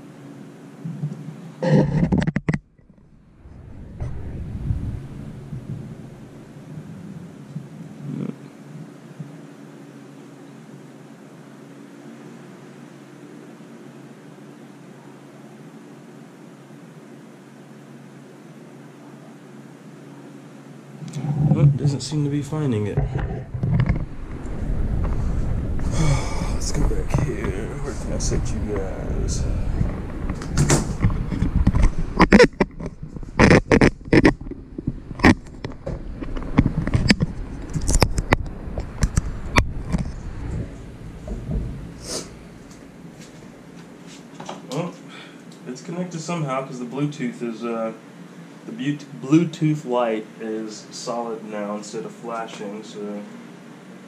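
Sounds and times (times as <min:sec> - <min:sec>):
low hum and hiss: 0:00.0 - 0:54.0
low rumble: 0:02.8 - 0:08.1, 0:21.1 - 0:44.0
loud rustle: 0:23.0 - 0:44.7.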